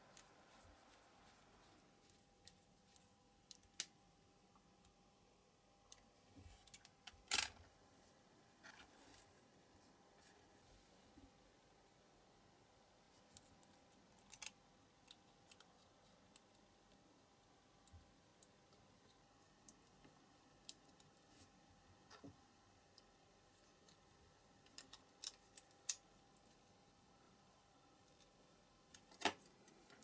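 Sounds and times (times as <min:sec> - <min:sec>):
plastic parts clicking on metal toy car: 0:24.6 - 0:26.0.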